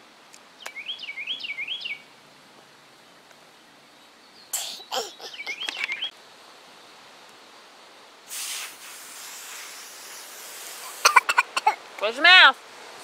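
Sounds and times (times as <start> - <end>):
bird chirping: 0.6 - 2.1, 3.7 - 6.2
short hiss: 4.6 - 5.0, 8.3 - 11.3.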